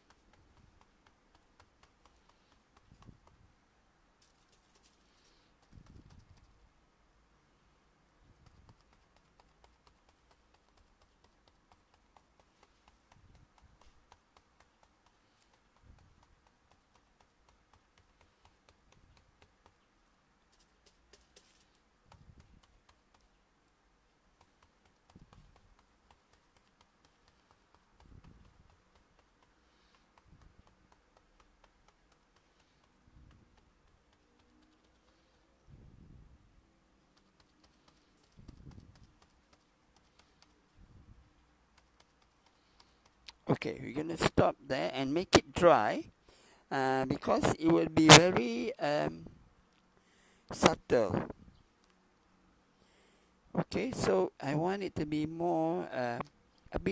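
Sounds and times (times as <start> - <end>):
sponge tapping on canvas: 0.0 - 3.4, 8.4 - 19.9.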